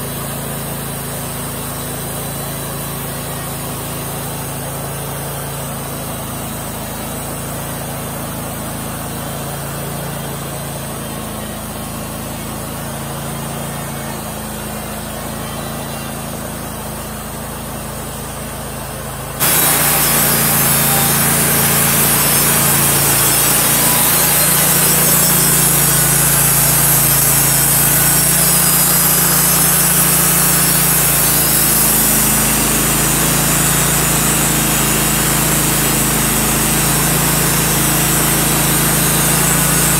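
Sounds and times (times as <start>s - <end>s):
sawmill engine drone: 0.0s - 39.9s
saw blade hissing through wood: 19.4s - 39.9s.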